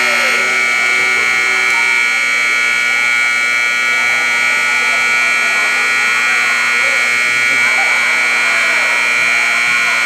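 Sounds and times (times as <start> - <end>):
high electronic whine: 0.0 - 10.0.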